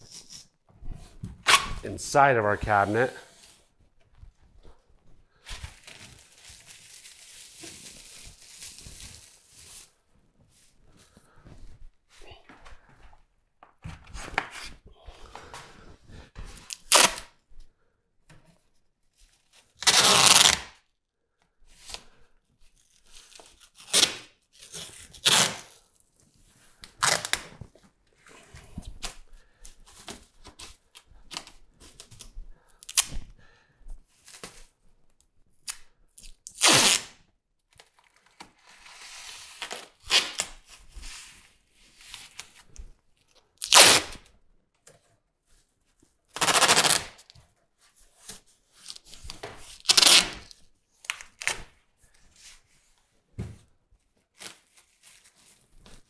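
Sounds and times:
tape tearing: 0:01.4 - 0:01.8, 0:16.6 - 0:17.3, 0:19.8 - 0:20.8, 0:22.8 - 0:25.8, 0:26.8 - 0:27.6, 0:32.8 - 0:33.2, 0:35.6 - 0:37.2, 0:38.7 - 0:40.6, 0:43.6 - 0:44.3, 0:46.3 - 0:47.3, 0:48.2 - 0:51.7.

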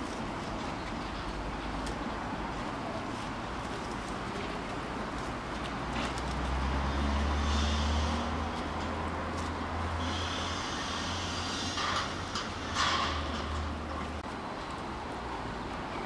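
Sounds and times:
outdoor background noise: 0:00.0 - 0:16.0
vehicle engine rumble: 0:00.0 - 0:16.0
high hiss: 0:10.0 - 0:12.8.

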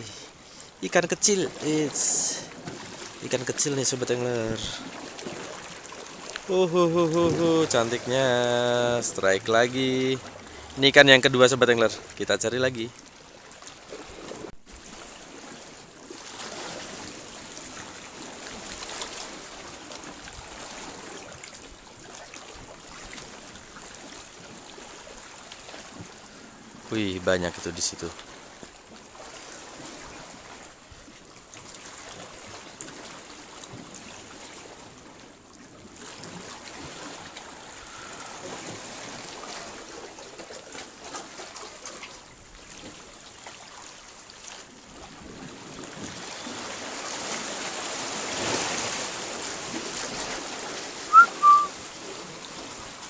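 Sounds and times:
sea water washing on rocks: 0:00.0 - 0:13.0, 0:13.8 - 0:30.9, 0:31.5 - 0:53.0
short high chirps: 0:51.1 - 0:51.7.

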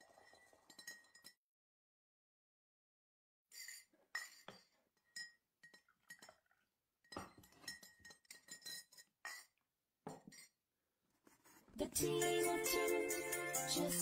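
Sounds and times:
glass clinks on teacup: 0:07.1 - 0:09.5.

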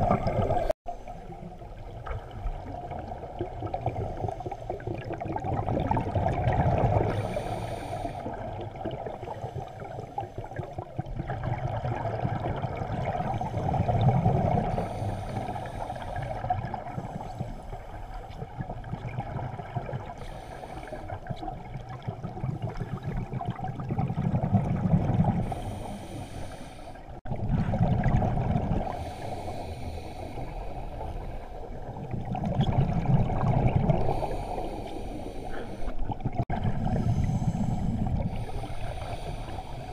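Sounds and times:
regulator bubbles gurgling: 0:00.0 - 0:26.4, 0:27.0 - 0:39.9
regulator inhalation hisses: 0:07.2 - 0:08.3, 0:25.5 - 0:27.1, 0:37.0 - 0:39.9.

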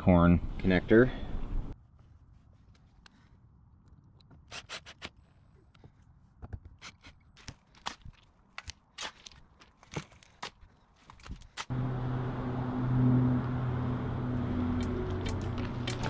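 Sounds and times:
shovel scraping dirt and gravel: 0:14.8 - 0:16.0.

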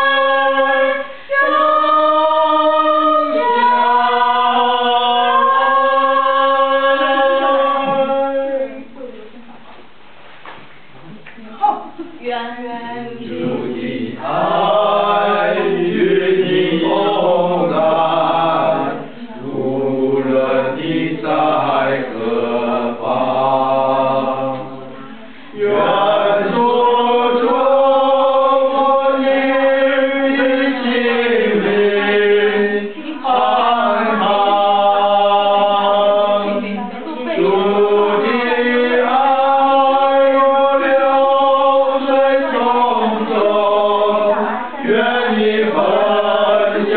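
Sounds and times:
voices singing slow melody: 0:00.0 - 0:09.1, 0:12.7 - 0:46.9
lower vocal part: 0:13.1 - 0:46.9.

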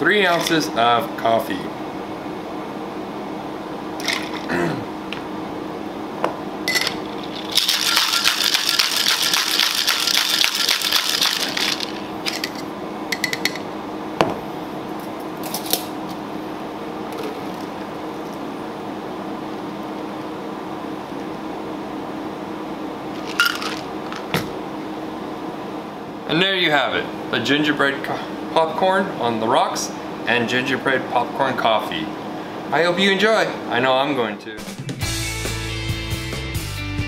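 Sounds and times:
cocktail shaker rattling: 0:06.7 - 0:12.6, 0:23.2 - 0:23.9.

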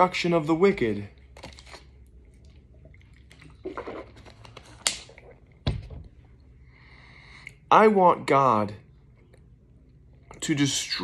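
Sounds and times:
person sipping: 0:02.0 - 0:04.8.

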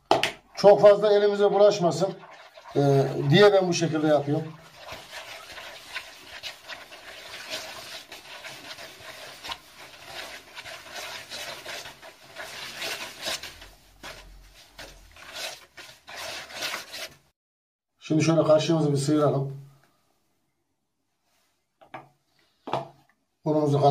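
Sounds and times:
hands mixing dough in bowl: 0:00.0 - 0:17.3.

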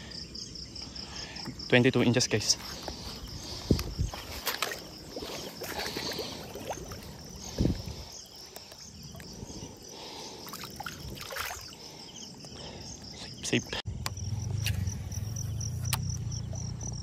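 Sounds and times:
crickets chirring: 0:00.0 - 0:17.0
water splashing and trickling: 0:02.4 - 0:12.8.

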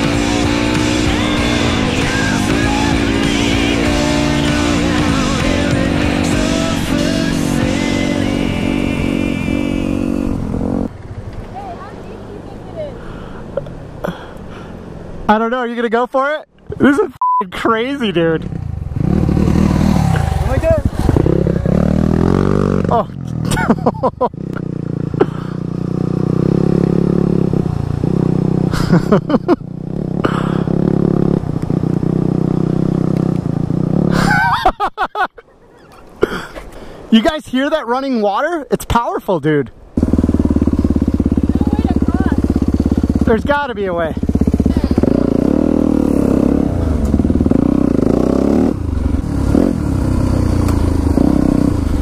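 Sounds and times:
dirt bike engine idling: 0:18.4 - 0:34.5, 0:39.9 - 0:52.0.

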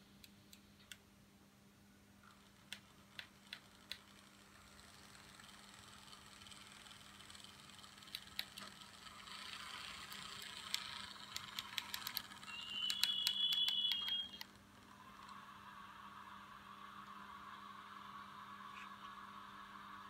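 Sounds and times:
high steady tone: 0:03.9 - 0:20.0
sharp clicks: 0:10.1 - 0:14.6.

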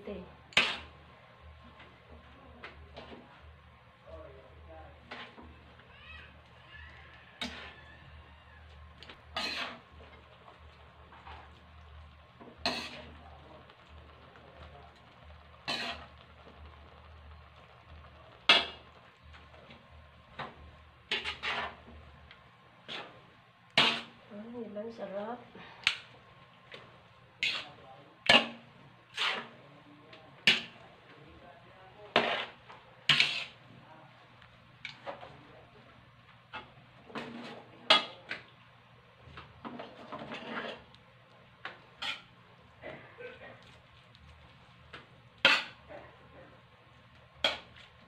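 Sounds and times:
spatula scraping and clanking on wok: 0:00.2 - 0:03.5, 0:05.0 - 0:24.3, 0:25.6 - 0:29.7, 0:30.3 - 0:30.9, 0:32.0 - 0:33.8, 0:34.8 - 0:35.4, 0:36.5 - 0:38.6, 0:39.3 - 0:41.0, 0:41.6 - 0:46.6, 0:47.2 - 0:48.0.

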